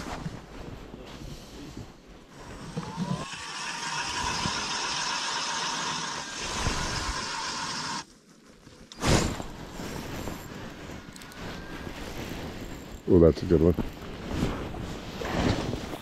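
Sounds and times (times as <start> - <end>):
ice auger motor drilling: 2.5 - 8.0.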